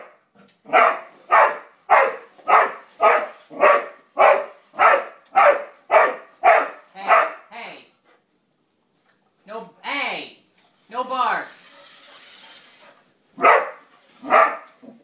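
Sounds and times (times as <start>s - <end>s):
dog barking: 0.7s - 7.5s, 13.4s - 14.9s.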